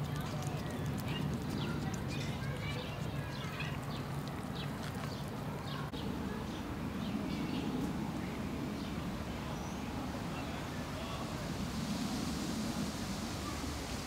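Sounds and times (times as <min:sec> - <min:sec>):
small birds chirping: 0:00.0 - 0:11.2
low background rumble: 0:00.0 - 0:14.0.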